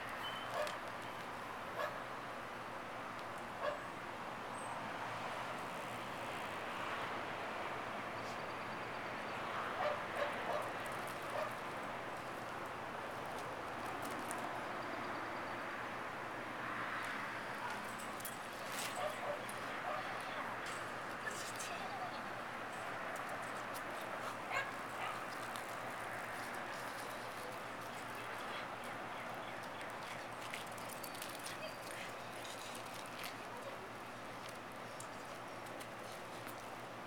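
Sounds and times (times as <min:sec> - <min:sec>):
steady background noise: 0:00.0 - 0:37.0
dog barks: 0:00.5 - 0:00.8, 0:01.8 - 0:02.0, 0:03.6 - 0:03.9, 0:09.6 - 0:10.7, 0:24.5 - 0:25.3.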